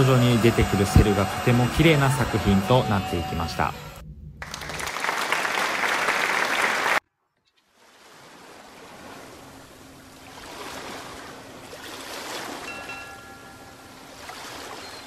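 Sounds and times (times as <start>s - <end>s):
ocean waves: 0.0s - 7.0s, 7.7s - 15.0s
applause: 4.4s - 7.0s.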